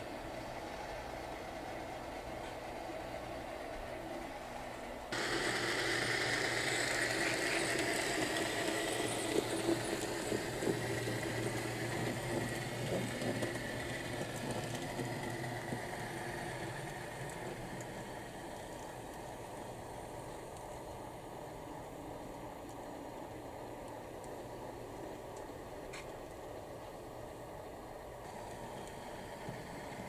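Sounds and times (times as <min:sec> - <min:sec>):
model locomotive whine: 0:00.0 - 0:30.0
wheels clicking on track: 0:00.0 - 0:30.0.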